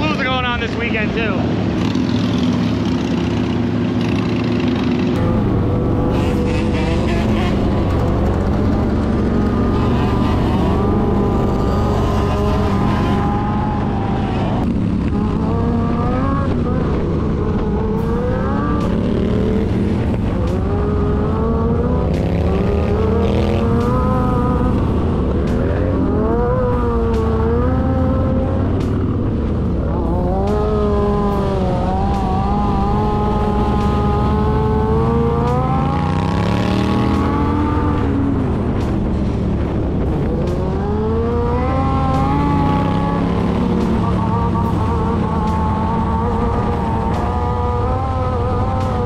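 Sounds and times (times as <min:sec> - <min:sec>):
motorcycle engines revving: 0:00.0 - 0:49.0.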